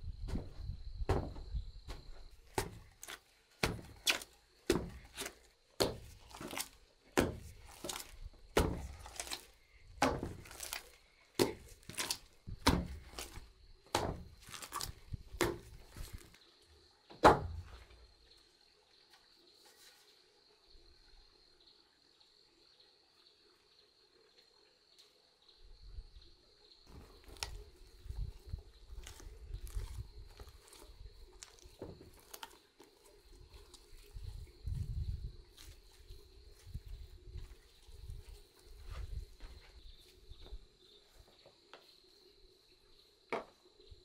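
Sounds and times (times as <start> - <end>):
wooden pestle pounding dough: 1.1 - 6.6, 7.2 - 9.3, 10.0 - 10.7, 11.4 - 14.6.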